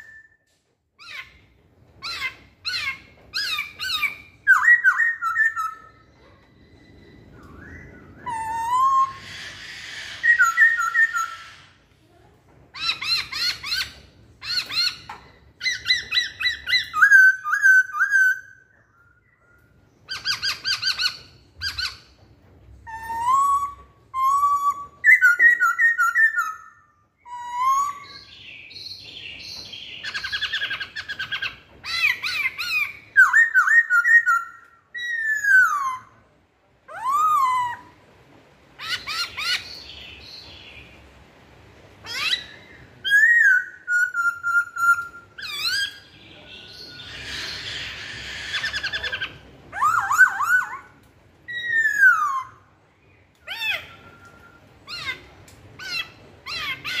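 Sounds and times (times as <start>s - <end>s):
bird singing whistles: 0.0s - 0.5s, 3.4s - 11.4s, 22.9s - 36.2s, 42.1s - 52.7s, 53.5s - 54.7s.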